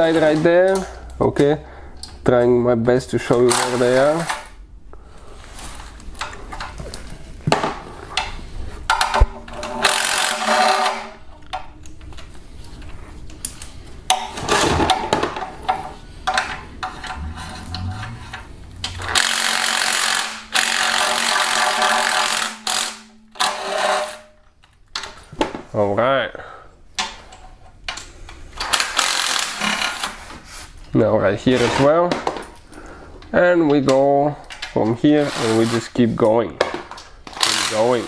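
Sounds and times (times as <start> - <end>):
power ratchet spinning bolts: 9.8 - 11.0, 16.9 - 24.2
tool and bolts clattering: 14.1 - 24.3.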